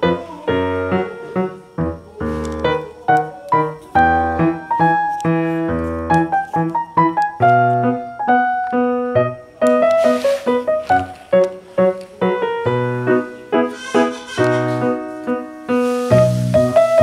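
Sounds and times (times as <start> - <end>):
keyboard tune: 0.7 - 10.0.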